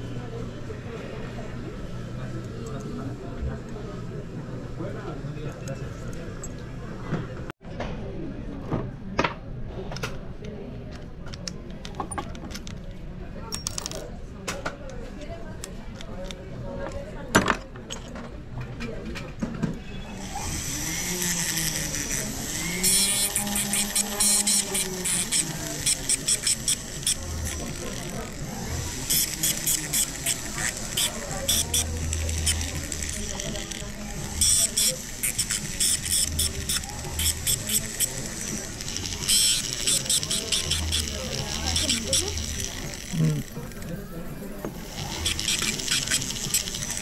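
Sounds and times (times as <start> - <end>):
rotary tool whining: 20.1 - 47.0.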